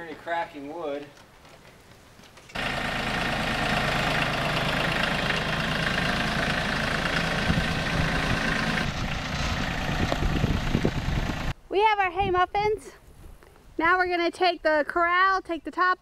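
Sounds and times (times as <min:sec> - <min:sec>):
tractor engine running: 0:02.4 - 0:11.6.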